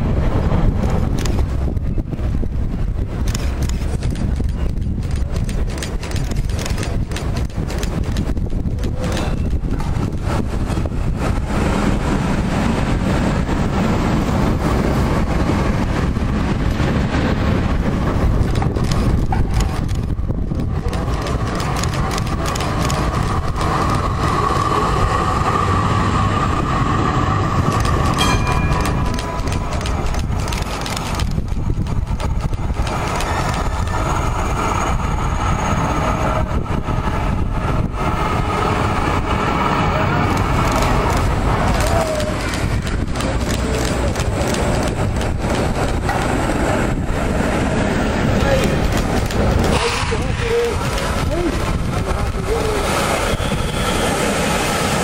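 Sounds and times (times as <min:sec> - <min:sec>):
tram wheels rolling on rails: 0:00.0 - 0:55.0
steady higher tone: 0:28.2 - 0:30.0.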